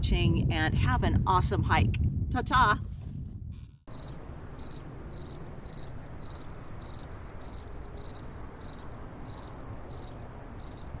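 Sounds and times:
cricket chirping: 3.9 - 11.0.

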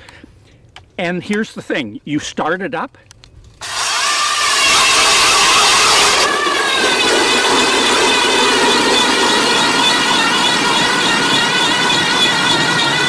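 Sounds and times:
electric ice auger motor whine: 3.6 - 13.0.

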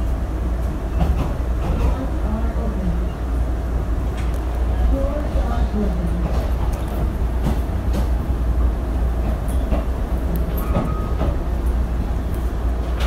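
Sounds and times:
train rumble from inside coach: 0.0 - 13.0
clicks and knocks on rails: 6.2 - 8.2, 9.2 - 11.8.

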